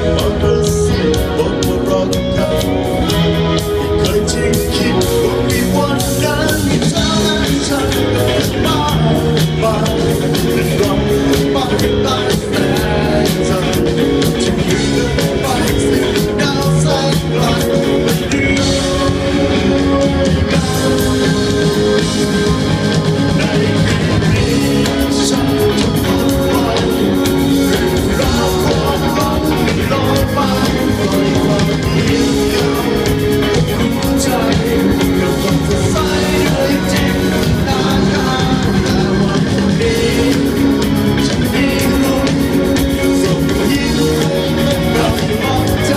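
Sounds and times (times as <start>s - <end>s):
electric bass guitar: 0.0s - 45.9s
keyboards: 0.0s - 45.9s
man singing into microphone: 0.0s - 45.9s.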